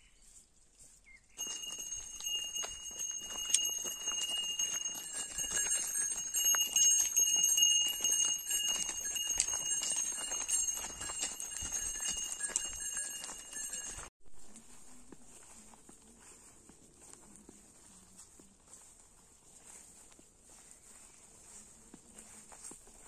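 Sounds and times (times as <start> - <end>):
hooves clicking and knocking: 1.4 - 14.1.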